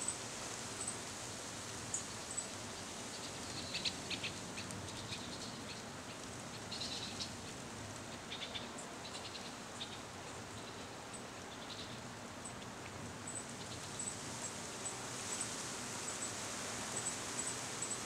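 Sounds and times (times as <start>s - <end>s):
breeze in tree leaves: 0.0s - 18.0s
light rain: 0.0s - 18.0s
small birds chirping: 3.1s - 7.5s, 8.1s - 15.5s.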